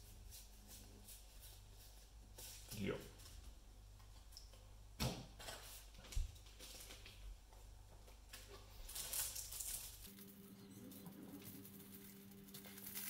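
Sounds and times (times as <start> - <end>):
cards rustling: 8.4 - 13.0.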